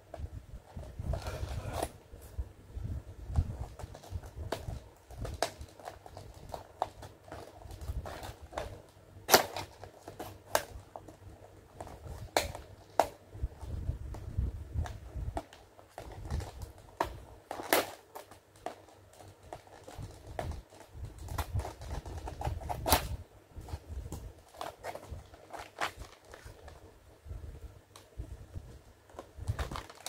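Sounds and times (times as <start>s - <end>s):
package handling rumble: 3.2s - 26.9s, 27.6s - 30.0s
scissors snipping plastic packaging: 3.8s - 10.9s, 14.8s - 23.2s, 29.5s - 30.0s.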